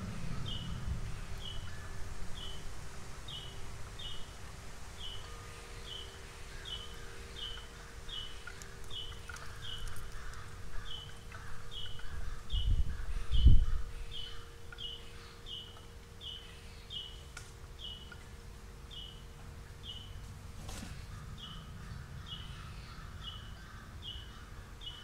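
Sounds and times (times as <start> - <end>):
low rumble: 0.0 - 3.6.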